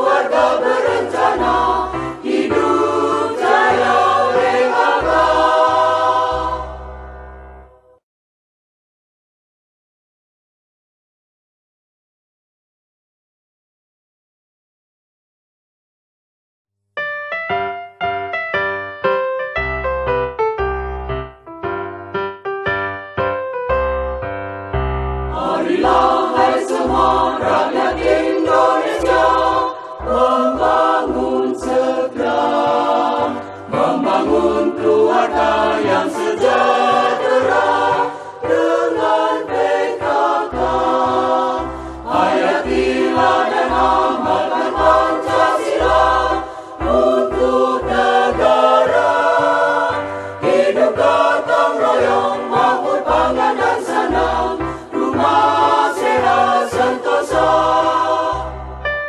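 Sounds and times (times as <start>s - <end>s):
voices singing over bass beat: 25.4s - 58.6s.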